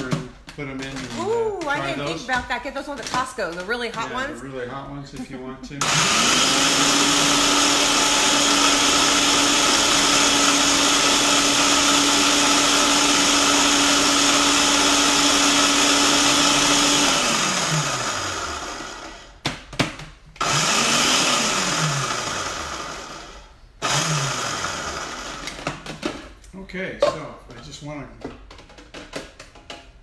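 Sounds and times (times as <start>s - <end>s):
food processor motor grinding: 5.8s - 19.4s, 20.4s - 25.7s.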